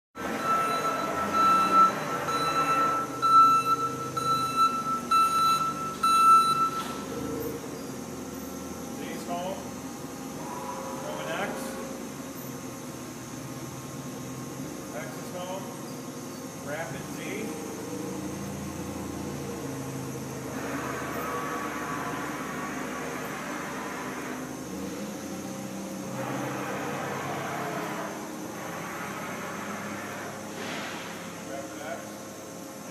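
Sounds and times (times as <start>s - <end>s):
electronic warning beeps: 0.2s - 7.6s
shop machinery running: 0.2s - 32.9s.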